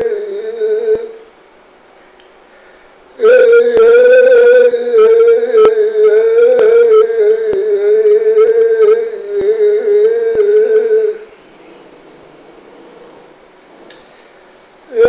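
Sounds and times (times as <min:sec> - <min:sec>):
faint sharp clicks: 0:02.0 - 0:02.4
man chanting a high note: 0:03.2 - 0:12.0.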